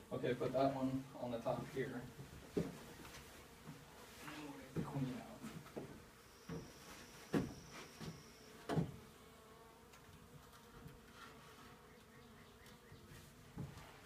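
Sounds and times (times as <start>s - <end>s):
wooden hive frames knocking: 4.7s - 9.0s.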